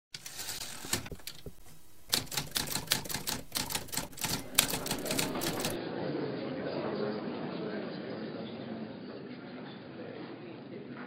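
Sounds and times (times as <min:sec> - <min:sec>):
typewriter keys clacking: 0:00.2 - 0:05.8.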